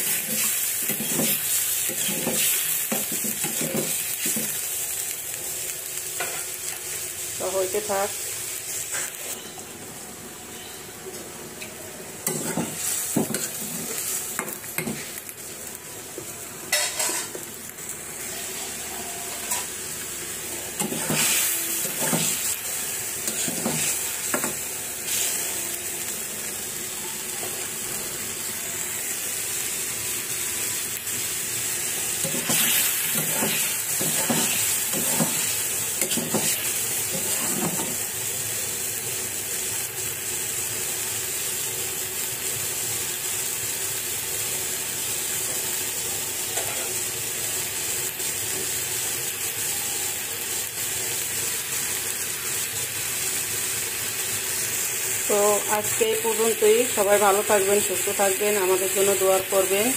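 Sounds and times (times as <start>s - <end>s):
curry sizzling in a pan: 0.0s - 59.9s
metal spatula scraping a pan: 12.2s - 14.1s, 20.8s - 22.6s, 32.2s - 38.0s.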